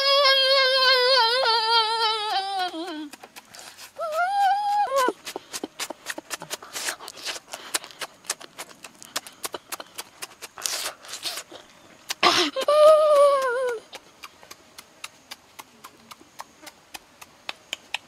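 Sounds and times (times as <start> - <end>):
person humming mmm: 0.0 - 5.8, 8.8 - 14.3
chewing with wet smacks: 2.6 - 4.0, 5.2 - 12.2, 13.4 - 18.0
breaths through nose: 6.4 - 8.2.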